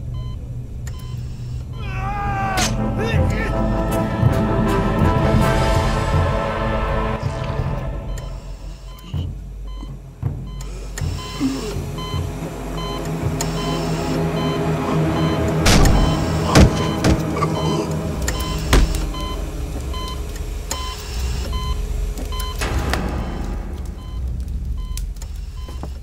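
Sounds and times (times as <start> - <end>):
low mechanical drone: 0.0 - 26.0
heavy blows and crash: 11.8 - 26.0.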